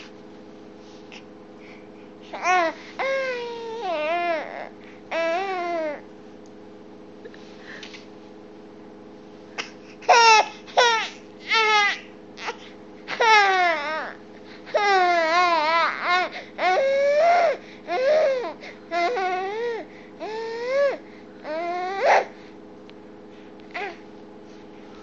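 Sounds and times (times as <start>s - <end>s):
baby crying: 2.3s - 6.0s, 10.1s - 22.3s.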